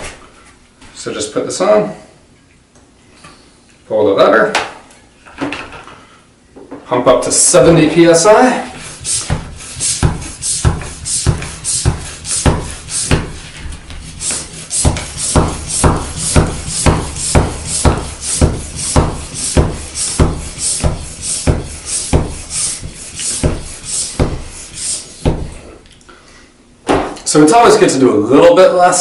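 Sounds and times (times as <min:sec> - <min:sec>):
bicycle pump strokes: 0:08.6 - 0:25.7.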